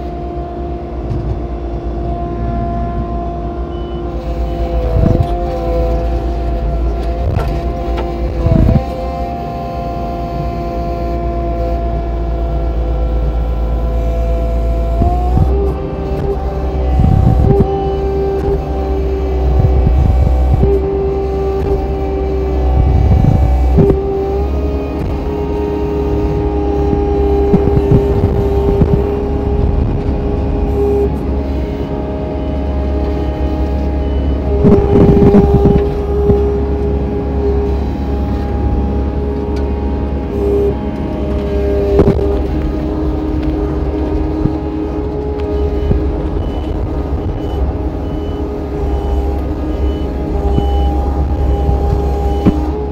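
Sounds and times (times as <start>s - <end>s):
diesel engine running hard: 0.0s - 52.9s
hydraulic saw whine: 0.0s - 52.9s
reverse alarm beeps: 3.7s - 5.2s, 31.7s - 36.4s, 45.5s - 52.8s.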